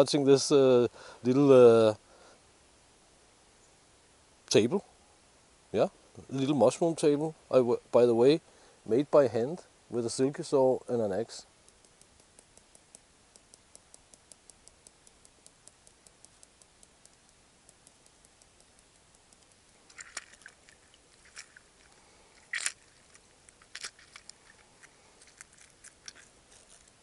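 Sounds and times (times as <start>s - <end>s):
faint regular ticking: 11.6s - 27.0s.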